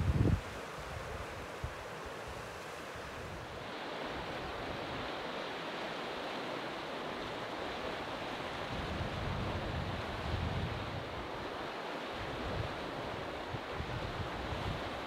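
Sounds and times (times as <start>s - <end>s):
wind buffeting microphone: 0.0s - 1.8s
flowing water: 0.0s - 15.0s.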